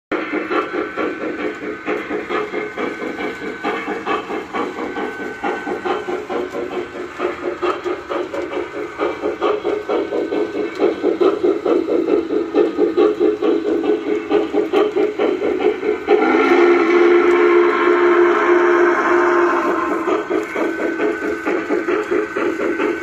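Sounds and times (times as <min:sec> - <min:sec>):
model steam locomotive chuffing: 0:00.1 - 0:23.0.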